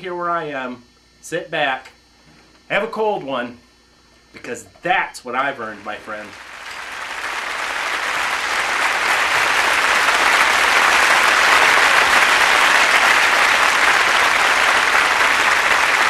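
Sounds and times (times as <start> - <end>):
crowd applause: 5.6 - 16.0.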